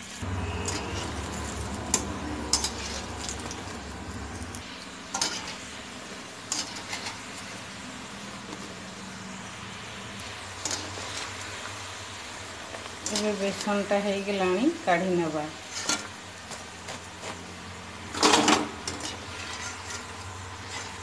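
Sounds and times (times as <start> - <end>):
food sizzling in oil: 0.0 - 21.0
skimmer clinking and scraping pan: 0.4 - 3.8, 5.1 - 5.7, 6.4 - 7.5, 10.6 - 11.4, 12.9 - 14.0, 15.6 - 16.2, 18.1 - 21.0.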